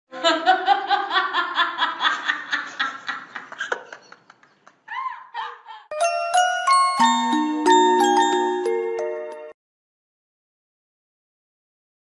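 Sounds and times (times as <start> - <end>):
person laughing in rhythmic bursts: 0.2 - 5.9.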